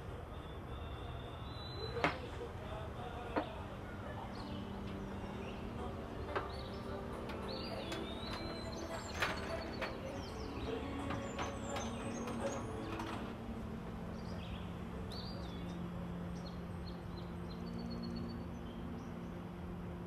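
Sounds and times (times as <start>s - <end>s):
low steady hum: 0.0s - 20.0s
metal baking tray clattering: 7.2s - 13.3s.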